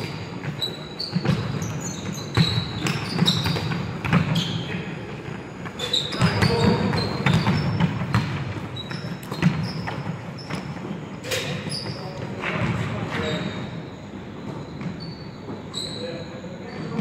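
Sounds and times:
trainers squeaking on floor: 0.0 - 17.0
basketball bouncing on wood floor: 0.4 - 4.4, 6.1 - 10.7.

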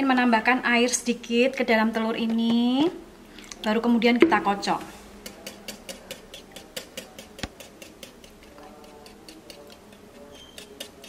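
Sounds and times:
whisk clicking against bowl: 5.2 - 11.0.

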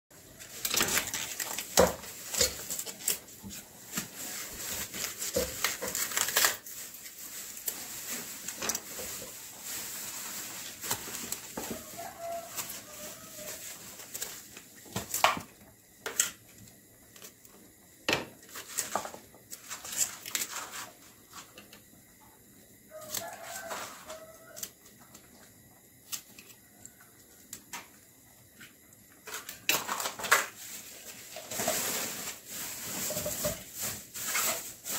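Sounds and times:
cauliflower crunching and tearing: 5.4 - 6.7.

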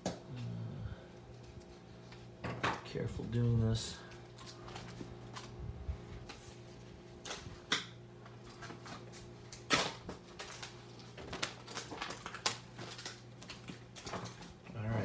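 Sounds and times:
faint steady hum: 0.0 - 15.0
plastic and cardboard crinkling: 4.2 - 5.6, 8.3 - 15.0.

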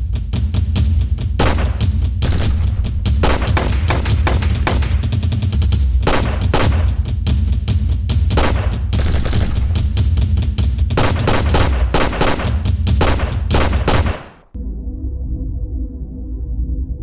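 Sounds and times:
low rumble: 1.2 - 17.0
rapid handgun shots: 1.4 - 5.4, 6.0 - 7.1, 8.3 - 10.2, 10.9 - 14.5.

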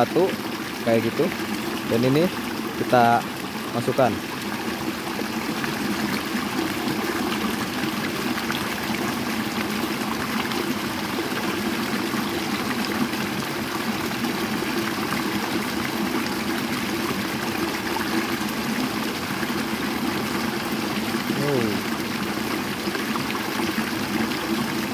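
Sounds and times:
stream water trickling: 0.0 - 24.9.

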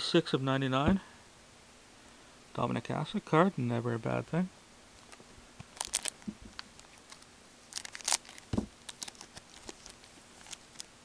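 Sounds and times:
wrapper crinkling and tearing: 5.0 - 11.0
dull thump: 8.5 - 8.8.

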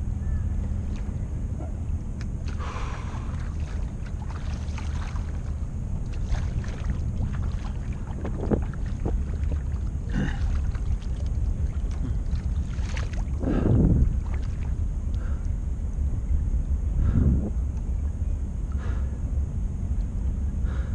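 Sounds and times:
wind rumble on microphone: 0.0 - 20.9
paddle strokes splashing: 2.4 - 15.4.

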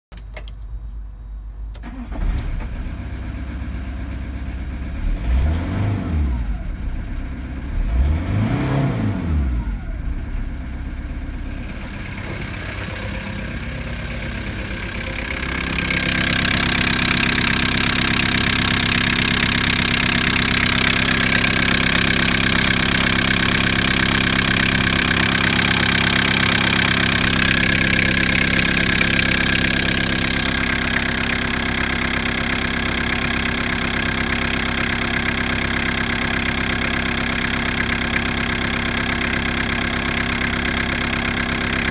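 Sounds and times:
diesel engine idling: 9.6 - 41.9.

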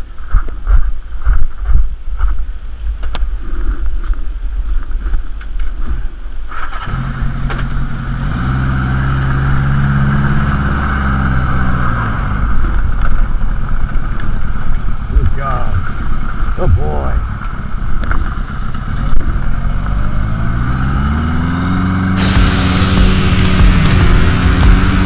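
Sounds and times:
motorcycle engine: 6.5 - 25.0.

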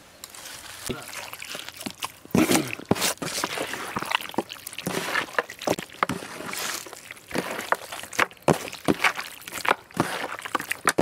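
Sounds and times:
wet squelching of meat by hand: 0.8 - 11.0.

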